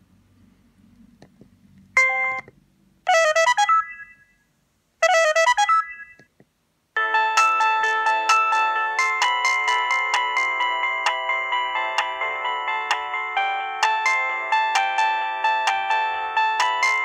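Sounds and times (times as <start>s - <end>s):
phone ringtone melodies: 2.0s - 2.5s, 3.1s - 4.4s, 5.1s - 6.2s, 7.0s - 17.0s.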